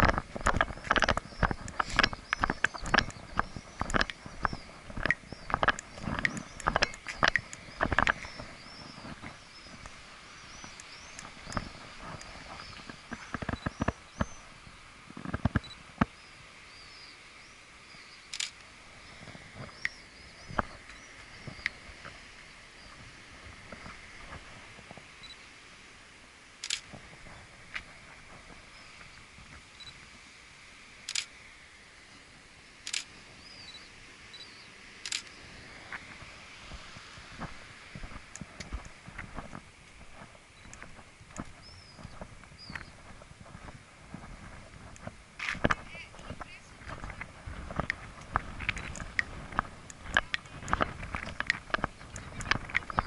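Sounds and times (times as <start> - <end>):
small birds chirping: 0.0 - 24.4, 26.6 - 30.0, 32.9 - 36.8, 40.2 - 43.7, 45.6 - 53.0
steady outdoor hiss: 0.0 - 53.0
camera shutter clicking: 26.6 - 26.9, 35.0 - 35.3.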